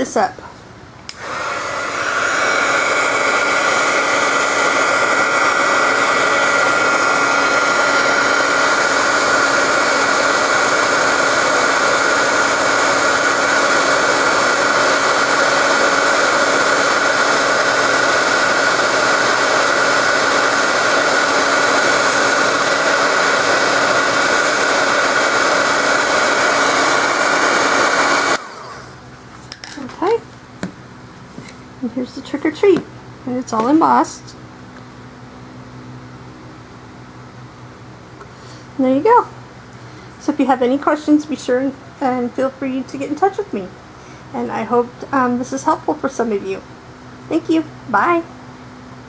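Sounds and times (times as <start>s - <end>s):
heat gun blowing with whine: 1.0s - 29.2s.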